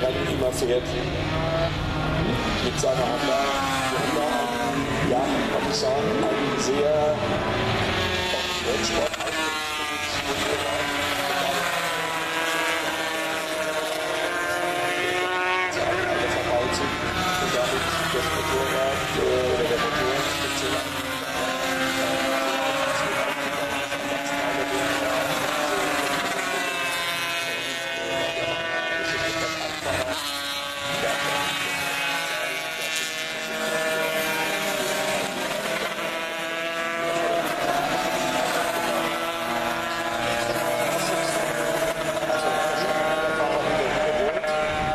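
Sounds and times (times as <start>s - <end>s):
racing motorcycles engines: 0.0s - 44.9s.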